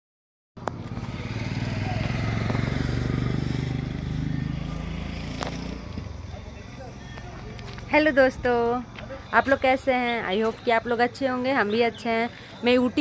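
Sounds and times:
vehicle engine running: 0.6 - 10.9.

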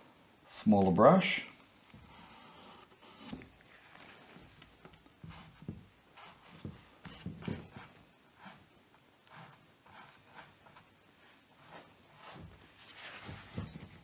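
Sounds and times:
paintbrush strokes on canvas: 5.2 - 14.0.

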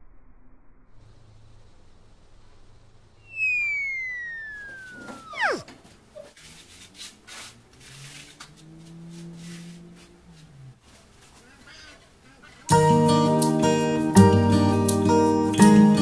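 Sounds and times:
low hum: 0.0 - 5.7
falling whistle tone: 3.2 - 6.3.

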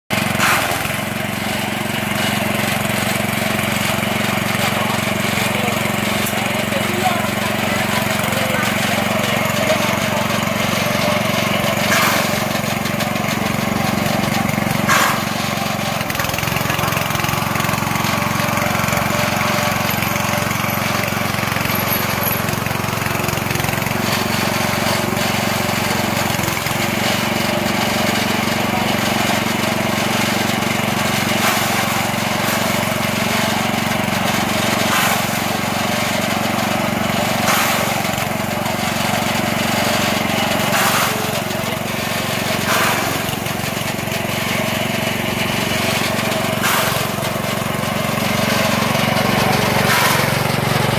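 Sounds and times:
small petrol engine running: 0.1 - 50.9
blades chopping stalks: 0.3 - 1.6, 10.8 - 13.4, 14.0 - 17.6, 40.6 - 41.4, 42.1 - 43.5, 45.8 - 47.4, 48.2 - 50.9.

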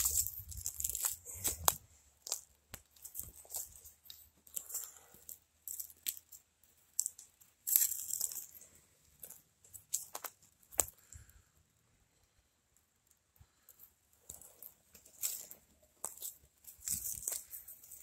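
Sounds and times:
footsteps on dry leaves: 0.0 - 2.4.

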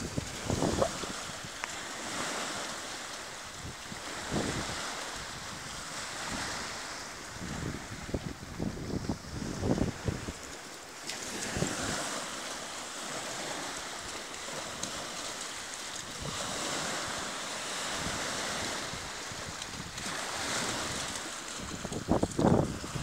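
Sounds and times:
wind buffeting microphone: 0.0 - 2.6, 3.5 - 10.6, 16.0 - 23.0
small waves washing on shore: 0.0 - 23.0.

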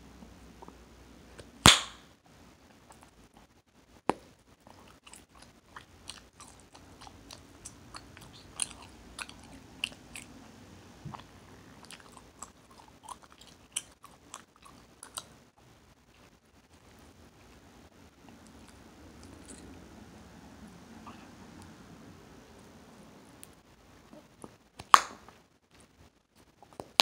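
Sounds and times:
gum snap: 1.6 - 2.0, 24.8 - 25.3
gum chewing with wet smacking: 4.6 - 10.4, 11.0 - 15.4.

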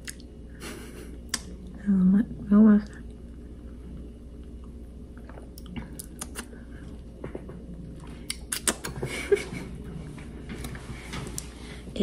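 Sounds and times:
lip smacking mouth clicks: 0.0 - 0.3, 1.3 - 1.6, 5.2 - 6.6, 8.2 - 9.0.

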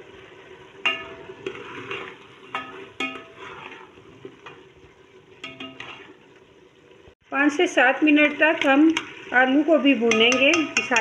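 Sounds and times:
vegetables sizzling in pot: 0.0 - 11.0
spatula knocking metal pot: 0.8 - 1.2, 10.0 - 11.0.

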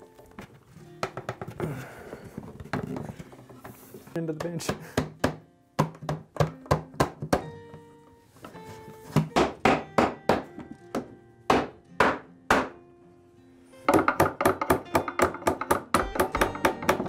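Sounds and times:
background music: 0.0 - 17.0
wooden mallet knocking wood: 1.0 - 1.6, 4.4 - 7.4, 13.9 - 17.0.

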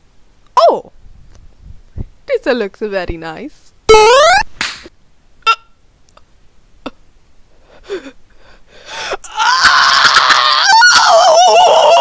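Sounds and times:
man wailing in pain: 8.9 - 12.0.

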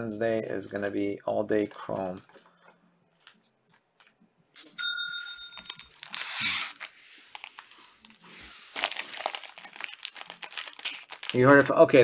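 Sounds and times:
bell-like ding: 4.6 - 5.8
foil wrappers tearing and crinkling: 5.6 - 12.0.

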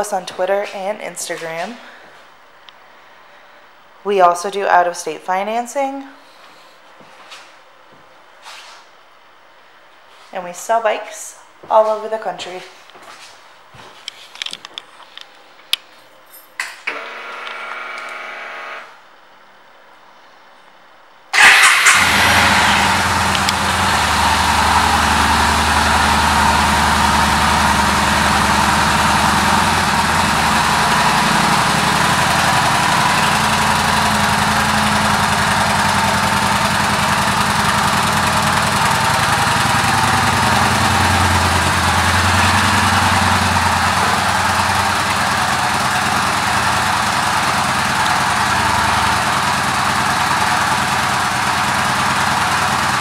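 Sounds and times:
motorcycle engine starting and idling: 21.3 - 53.0.

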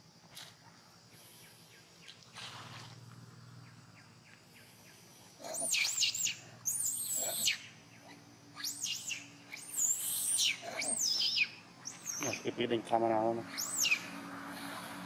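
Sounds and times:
monkey screaming: 5.4 - 12.5, 13.4 - 15.0.

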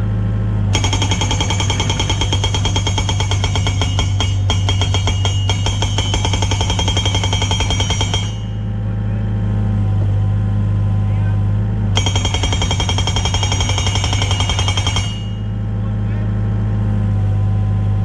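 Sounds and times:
diesel engine running: 0.0 - 18.0
hydraulic rock breaker hammering: 0.7 - 8.7, 12.0 - 15.6.

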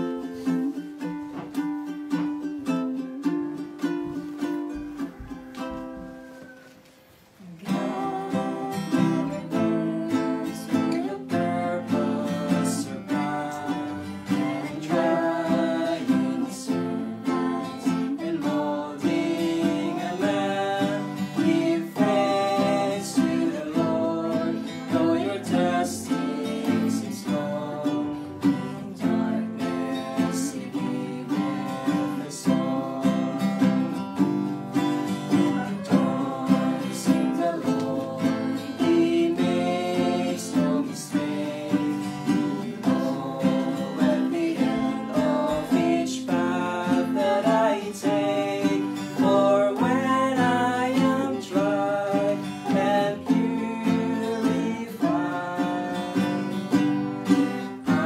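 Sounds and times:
acoustic guitar strumming: 0.0 - 58.0
ukulele strumming: 0.0 - 58.0.

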